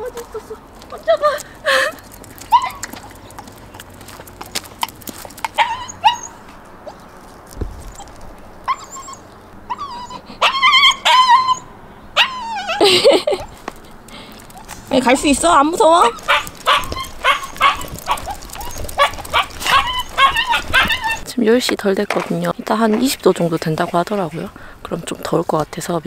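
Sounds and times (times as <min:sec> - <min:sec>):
puppy yipping and whining: 0:02.4 - 0:03.0, 0:05.6 - 0:07.0, 0:08.0 - 0:12.9, 0:15.9 - 0:21.3.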